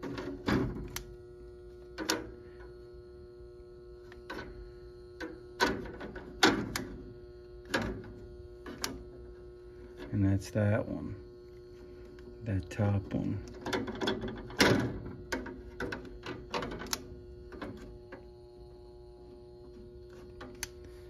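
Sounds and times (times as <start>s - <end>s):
clicks and knocks on sheet metal: 0.0s - 1.0s, 2.0s - 2.4s, 5.2s - 9.1s, 13.5s - 18.2s
steady electrical hum: 0.0s - 21.0s.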